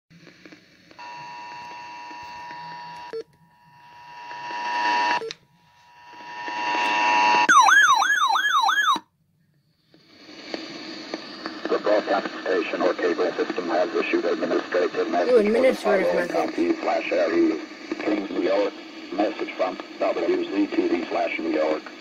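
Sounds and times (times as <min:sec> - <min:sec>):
warbling siren-like alarm: 0:07.0 - 0:09.0
weather radio alert tone: 0:15.3 - 0:16.7.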